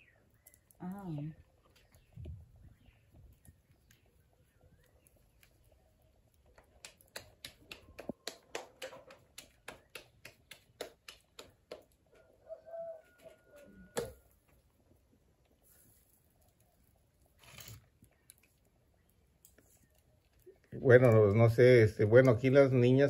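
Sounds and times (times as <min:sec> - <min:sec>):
hands patting dough flat: 0:06.5 - 0:12.1.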